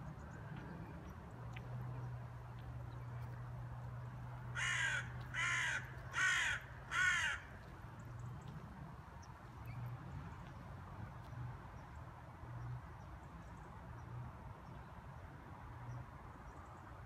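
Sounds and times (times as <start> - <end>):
crow cawing: 4.5 - 7.5.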